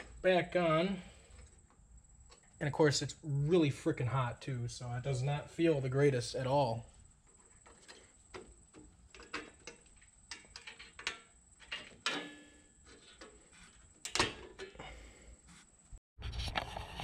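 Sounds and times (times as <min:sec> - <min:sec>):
small metal clicks and scrapes: 0:07.3 - 0:14.8.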